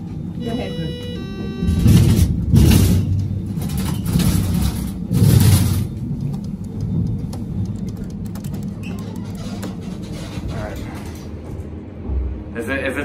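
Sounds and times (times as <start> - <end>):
elevator low rumble: 0.0 - 13.0.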